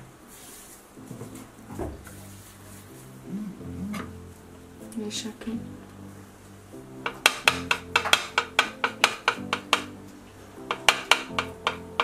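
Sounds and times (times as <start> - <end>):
sustained low instrumental notes: 1.0 - 12.0
sharp percussive strikes: 7.0 - 9.9.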